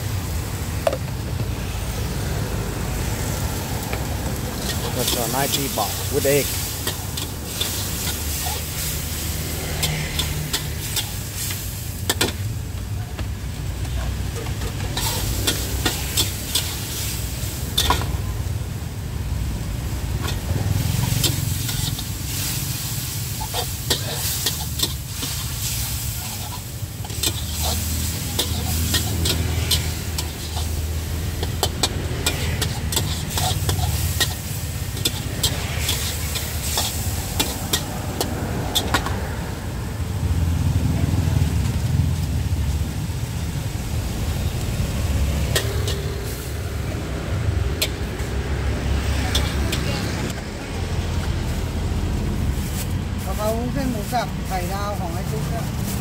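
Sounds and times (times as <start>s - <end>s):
meat sizzling: 0.0s - 56.0s
metal spatula scraping wok: 3.0s - 12.5s, 14.1s - 18.4s, 19.7s - 39.4s, 44.4s - 50.4s.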